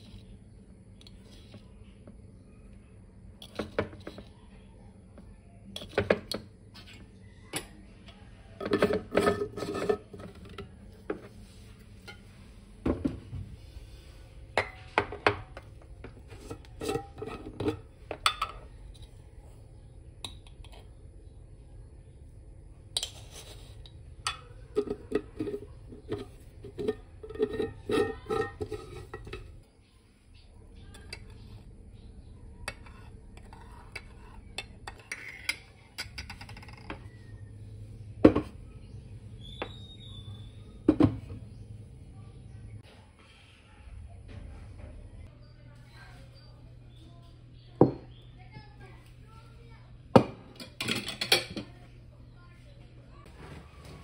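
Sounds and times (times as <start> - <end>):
dishes and cutlery clattering: 8.6 - 10.6, 14.6 - 18.6, 24.3 - 29.6, 50.2 - 51.7.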